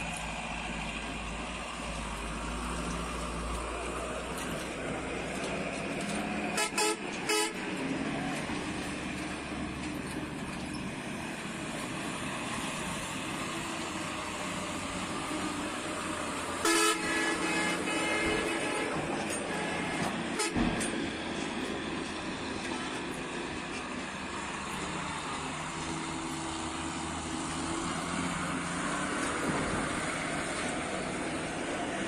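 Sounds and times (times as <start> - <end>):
diesel truck engines: 0.0 - 32.0
vehicle horn toots: 6.5 - 7.6, 16.6 - 20.9
loud horn blast: 6.5 - 7.8, 16.6 - 20.9.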